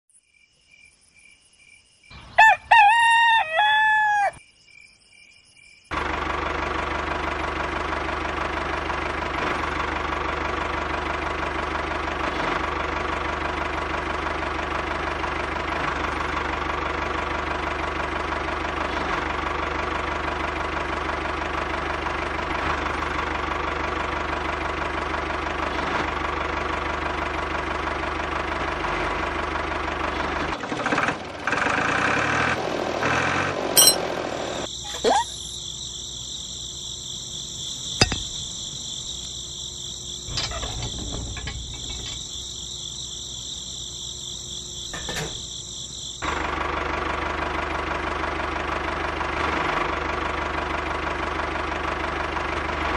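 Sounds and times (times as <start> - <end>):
rooster crowing: 2.2 - 4.4.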